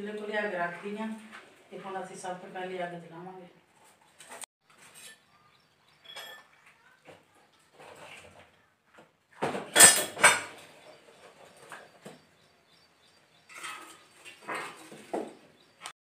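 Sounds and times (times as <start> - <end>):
firewood sticks clattering: 9.4 - 12.0, 13.4 - 15.4.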